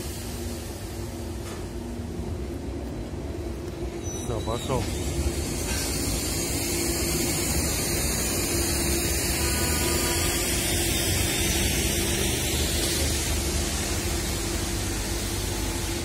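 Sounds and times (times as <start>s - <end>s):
broad even hiss: 0.0s - 1.4s
diesel locomotive engine drone: 0.0s - 16.0s.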